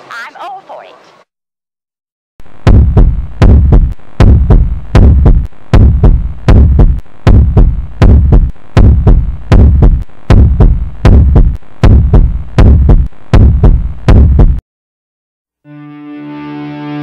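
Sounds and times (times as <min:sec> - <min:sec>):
low thumping pulse: 0:02.4 - 0:14.6.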